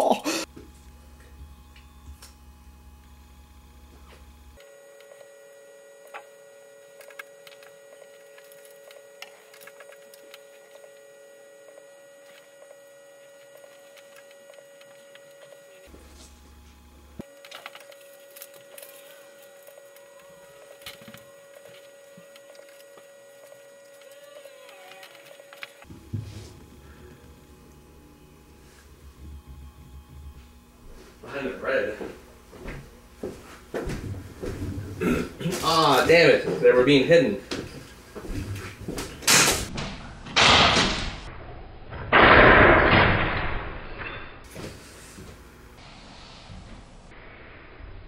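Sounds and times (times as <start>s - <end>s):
faint high whine: 0.8s - 32.2s.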